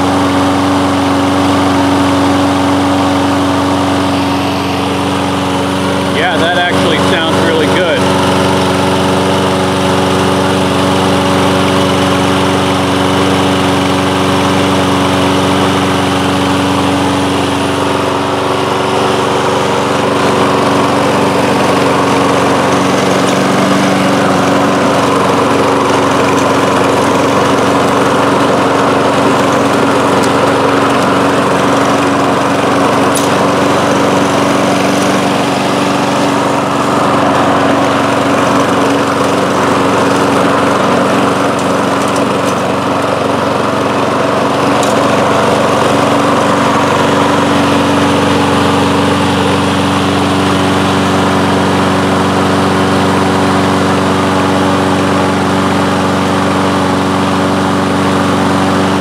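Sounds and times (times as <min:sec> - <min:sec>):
lawn mower engine running: 0:00.0 - 0:59.0.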